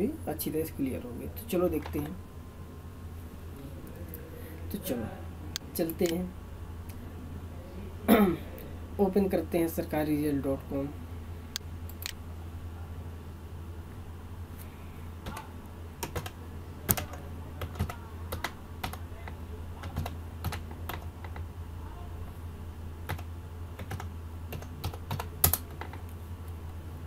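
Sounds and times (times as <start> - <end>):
computer keyboard typing: 15.2 - 21.5, 23.0 - 26.2.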